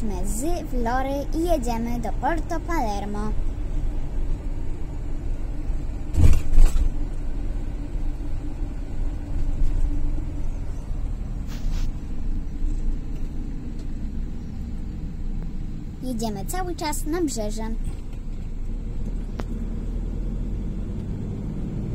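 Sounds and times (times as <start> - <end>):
engine and tyre rumble: 0.0 - 21.9
sharp double thump: 6.1 - 7.0.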